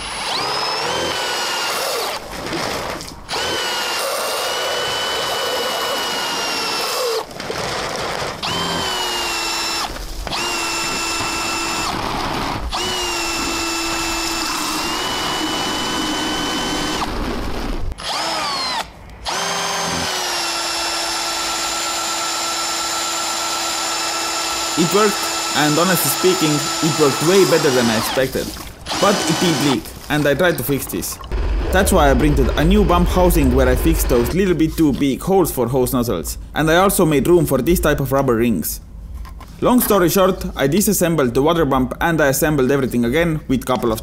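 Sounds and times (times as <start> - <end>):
cordless drill motor whining: 0.0 - 2.2, 2.8 - 29.9.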